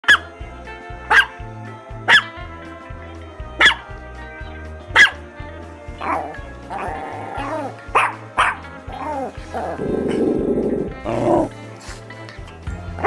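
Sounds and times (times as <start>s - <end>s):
small dog barking: 0.0s - 0.3s, 1.1s - 1.4s, 2.1s - 2.3s, 3.6s - 3.9s, 4.9s - 5.2s, 6.0s - 9.1s
background music with bass: 0.0s - 13.0s.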